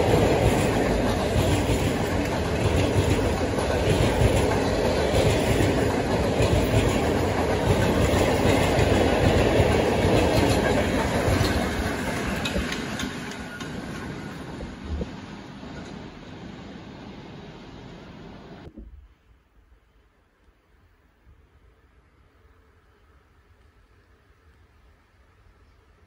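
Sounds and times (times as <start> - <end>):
freight train wheels rumbling: 0.0 - 18.7.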